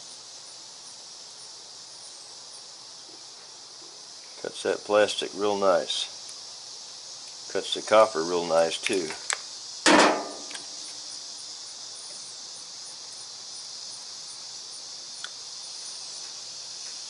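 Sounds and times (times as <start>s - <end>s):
crickets: 0.0s - 17.0s
metal clank on toolbox: 9.9s - 10.6s.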